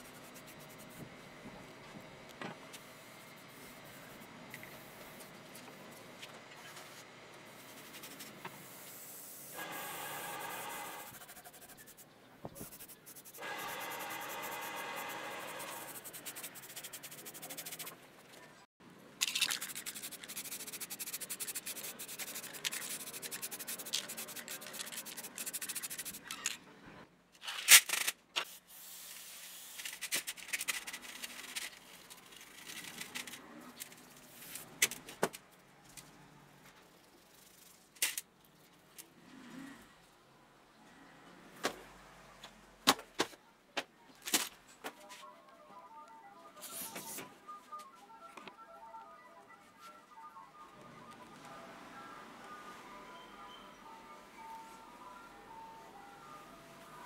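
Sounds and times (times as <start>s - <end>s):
brush scrubbing bicycle parts: 7.6s - 18.0s, 19.2s - 26.3s.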